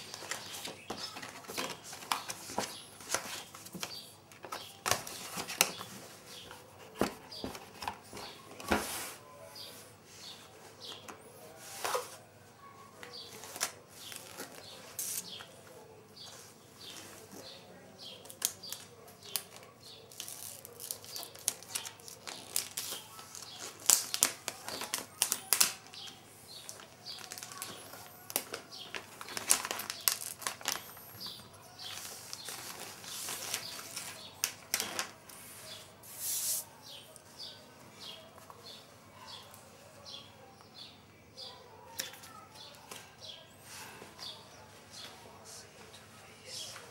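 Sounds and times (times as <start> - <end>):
packaging rustling and crinkling: 0.0 - 9.2, 18.2 - 35.8.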